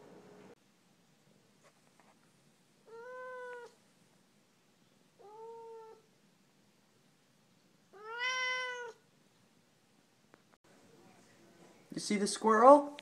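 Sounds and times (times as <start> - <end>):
cat meowing: 2.8 - 3.8, 5.2 - 6.1, 7.9 - 9.0.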